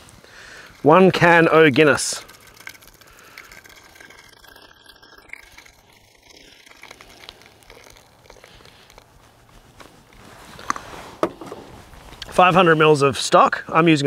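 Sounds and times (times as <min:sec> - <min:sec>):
beer trickling and splashing: 0:00.0 - 0:10.8.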